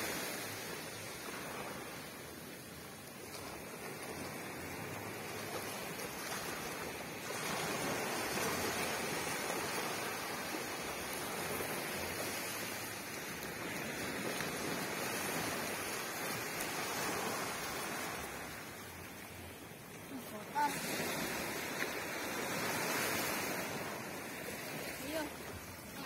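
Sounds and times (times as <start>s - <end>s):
small waves washing on sandy beach: 0.0s - 26.0s.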